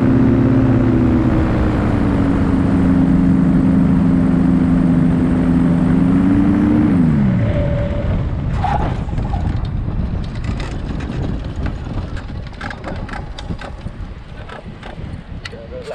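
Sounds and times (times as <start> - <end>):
scattered clicks and knocks: 9.4 - 15.9.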